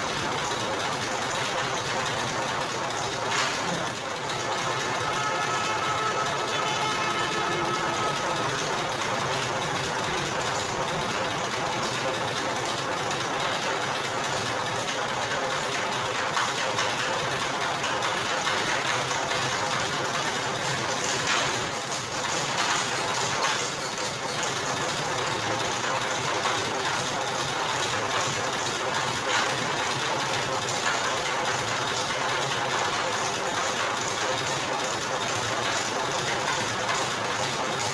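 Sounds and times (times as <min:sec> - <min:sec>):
machine clattering: 0:00.0 - 0:37.9
sugarcane crushing machine running: 0:00.0 - 0:37.9.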